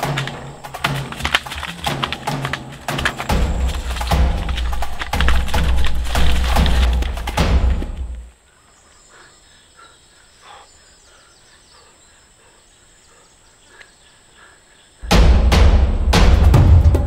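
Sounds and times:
drum-heavy music: 0:00.0 - 0:08.3, 0:15.0 - 0:17.0
insect ticking: 0:00.0 - 0:15.0
bird calls: 0:00.0 - 0:15.1.

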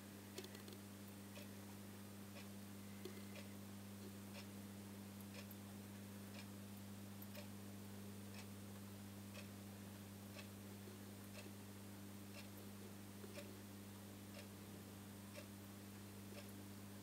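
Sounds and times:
aquarium filter pump hum: 0:00.0 - 0:17.0.

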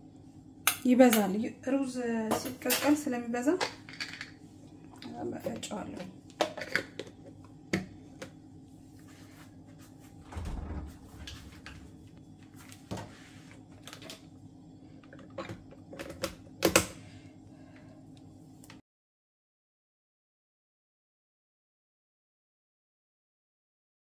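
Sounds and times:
faint steady hum: 0:00.0 - 0:18.8.

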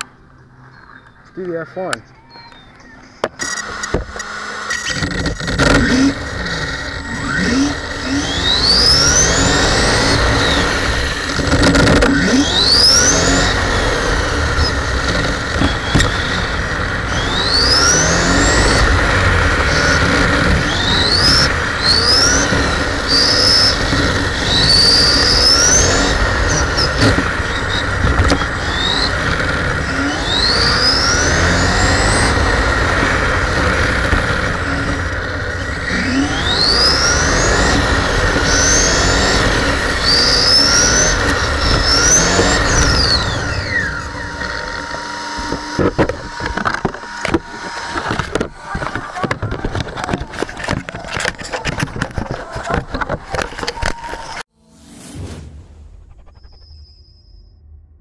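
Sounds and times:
tyres and drivetrain rumble: 0:00.0 - 0:54.5
toy car motor whining: 0:02.5 - 0:54.5
knocks and clicks: 0:44.8 - 0:54.4.

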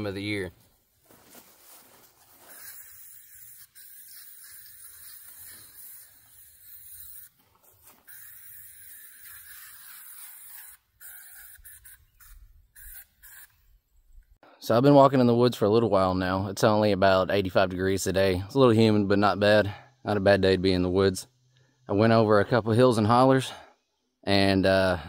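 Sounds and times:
aerosol can spraying: 0:02.3 - 0:13.7.

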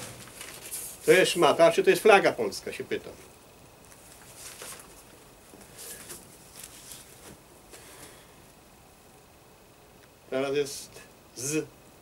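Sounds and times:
flag rustling on pole: 0:00.0 - 0:01.3, 0:03.8 - 0:08.2
paper being handled: 0:00.0 - 0:01.4, 0:03.9 - 0:07.4.

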